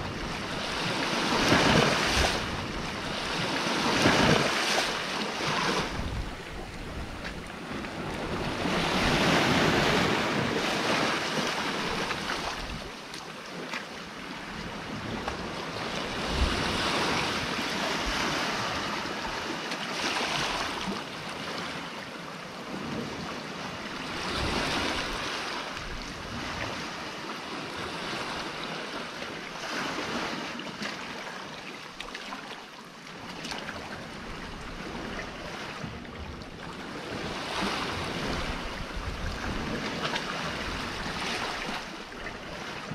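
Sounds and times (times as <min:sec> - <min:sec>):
wind rumbling on microphone: 0:00.0 - 0:13.1, 0:14.1 - 0:19.6, 0:22.6 - 0:29.0, 0:33.6 - 0:42.9
sea surf around rocks: 0:00.0 - 0:42.9.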